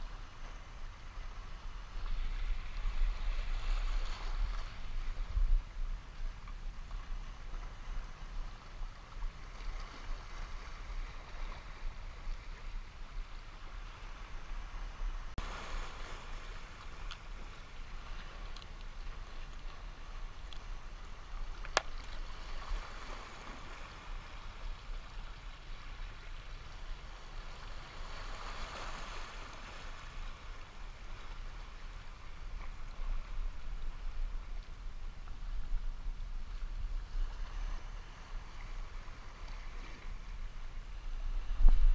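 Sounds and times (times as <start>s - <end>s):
waves washing over rocks: 13.7s - 41.9s.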